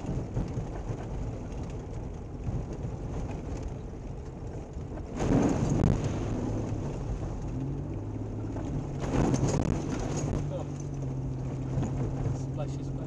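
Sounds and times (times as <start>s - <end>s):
engine and tyres rumbling: 0.0s - 13.0s
water splashing over car: 5.1s - 12.5s.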